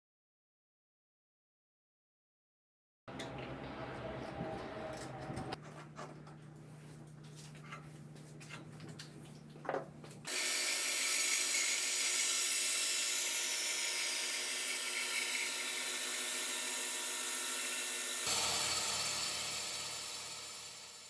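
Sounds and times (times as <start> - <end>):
band saw cutting wood: 10.3 - 21.0.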